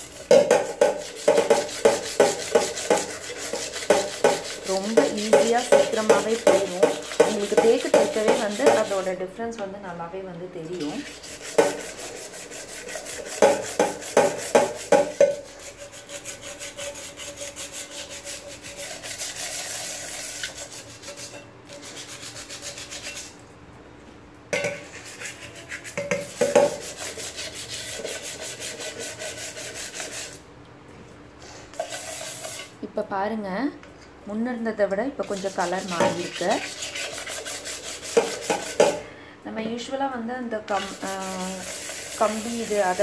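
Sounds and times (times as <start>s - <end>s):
sandpaper scrubbing a steel pan: 0.0s - 9.2s, 10.8s - 23.4s, 24.8s - 30.4s, 31.8s - 32.8s, 35.3s - 39.0s, 40.7s - 43.0s.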